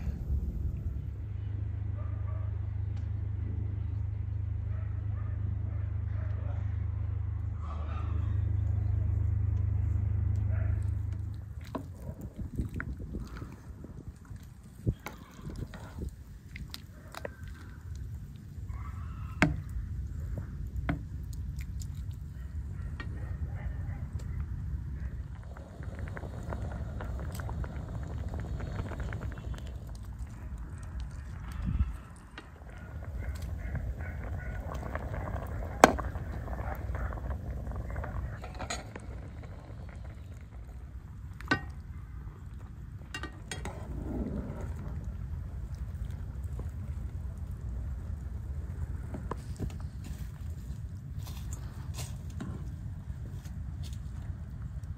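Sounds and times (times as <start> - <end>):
steady low rumble: 0.0 - 54.9
water boiling: 10.8 - 23.1, 24.0 - 54.9.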